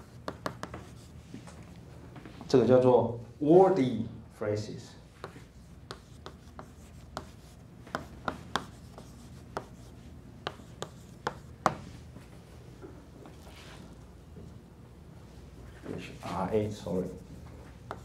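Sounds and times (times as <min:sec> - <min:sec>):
chalk tapping and scraping on board: 0:00.0 - 0:01.6, 0:05.2 - 0:12.0, 0:16.2 - 0:18.0.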